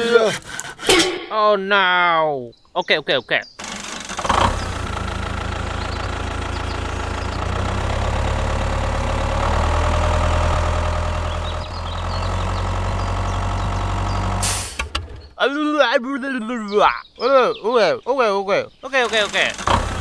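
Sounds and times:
engine running with deep hum: 3.6 - 15.3, 19.1 - 20.0.

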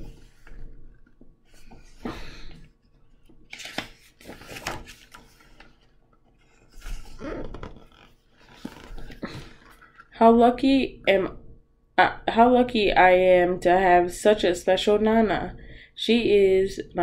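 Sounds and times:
book pages turning: 0.0 - 10.1.

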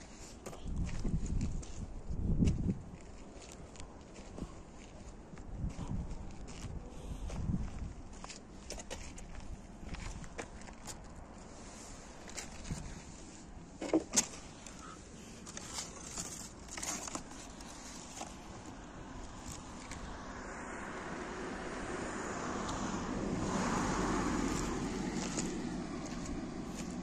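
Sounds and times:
car passing: 17.7 - 27.0.

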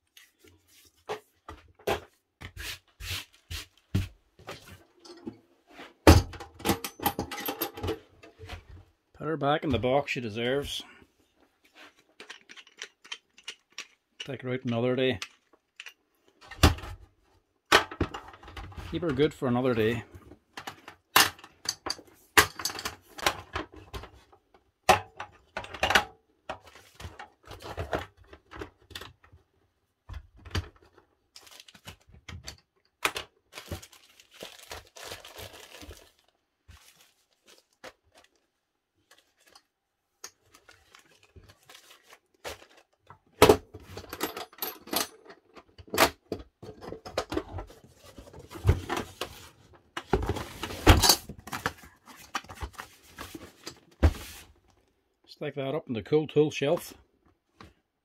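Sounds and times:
plastic bag crinkling: 33.5 - 39.5.

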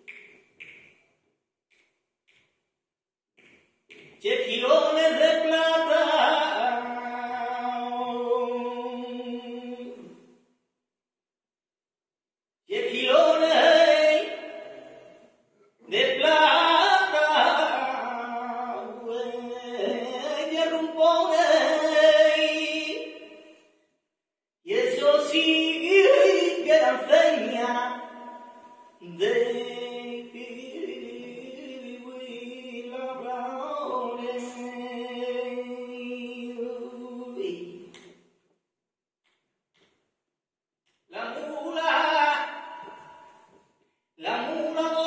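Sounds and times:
man singing unaccompanied: 4.2 - 10.2, 12.7 - 14.9, 15.8 - 23.3, 24.7 - 37.9, 41.1 - 43.1, 44.2 - 45.0.

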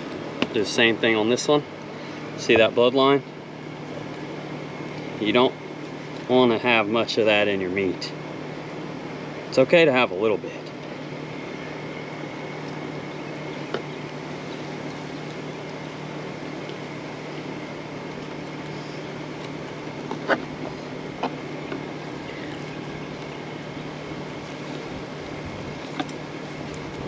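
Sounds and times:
steady mechanical hum: 0.0 - 27.0.

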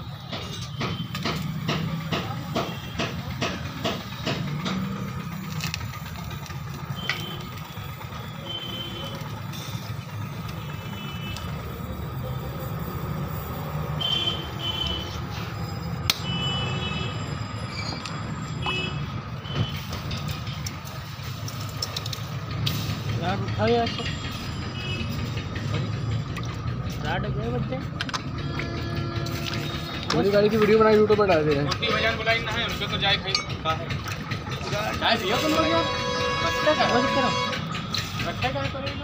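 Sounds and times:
brazing torch flame burning: 1.1 - 16.2.

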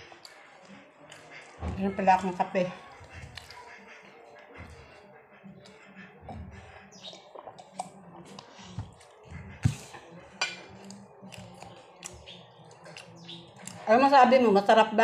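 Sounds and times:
tableware and cups clinking: 10.4 - 10.8.

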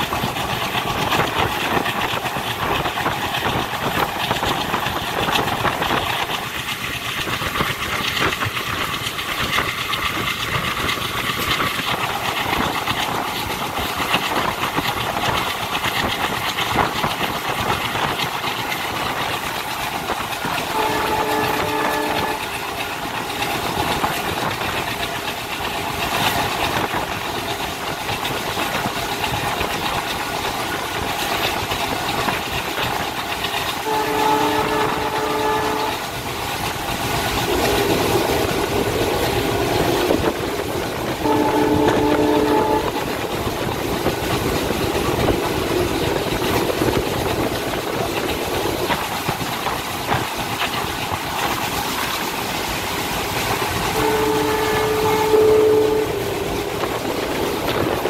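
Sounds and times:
train wheels on rails: 0.0 - 58.0
locomotive horn chord: 20.7 - 22.6, 33.8 - 36.0, 41.2 - 43.0, 54.0 - 56.3.

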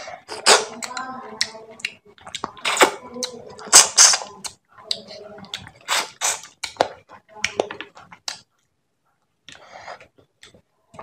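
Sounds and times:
wet mouth eating sounds: 0.0 - 8.5.

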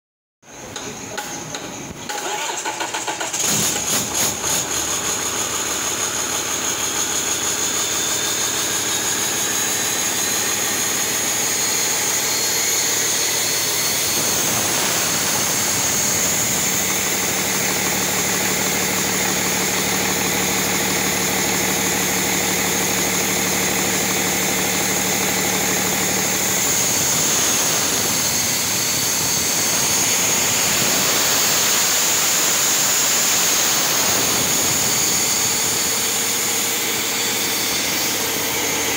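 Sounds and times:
diesel engine idling: 2.1 - 38.9
steady high whine: 3.7 - 38.9.

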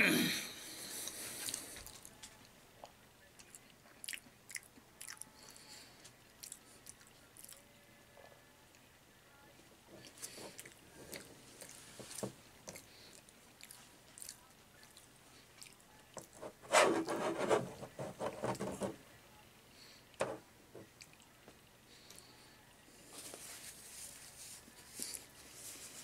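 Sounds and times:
paper napkins rustling: 23.0 - 26.0.

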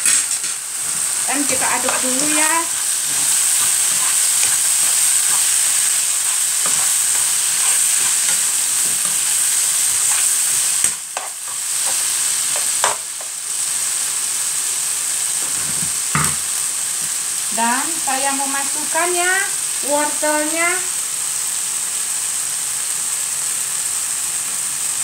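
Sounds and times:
food sizzling in a pan: 0.0 - 25.0
utensil scraping a pan: 0.4 - 13.3.

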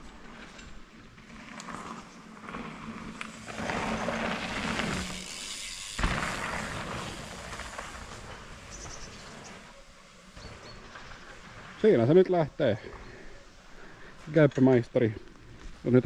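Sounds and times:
bike tyres rolling on dirt: 0.0 - 16.0
bike landing thud: 3.3 - 9.5.

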